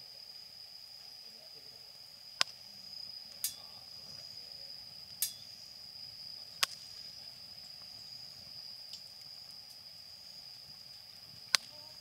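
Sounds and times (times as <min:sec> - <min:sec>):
wood fire crackling and popping: 0:02.3 - 0:12.0.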